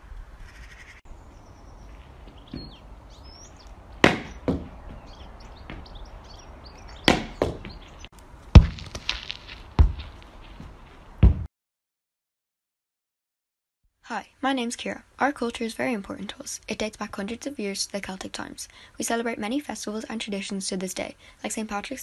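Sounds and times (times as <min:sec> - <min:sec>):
birds chirping: 0:00.4 - 0:08.1
stick striking ball: 0:04.0 - 0:05.0, 0:05.7 - 0:05.9, 0:07.0 - 0:07.8, 0:08.5 - 0:10.3.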